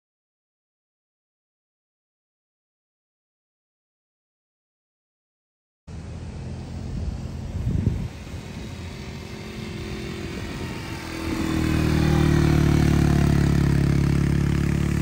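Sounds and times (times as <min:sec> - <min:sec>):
quad bike engine running: 0:05.9 - 0:15.0.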